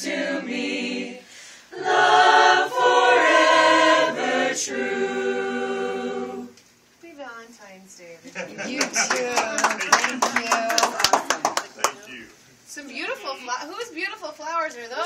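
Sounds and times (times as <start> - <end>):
mixed group singing a cappella: 0.0 - 6.6.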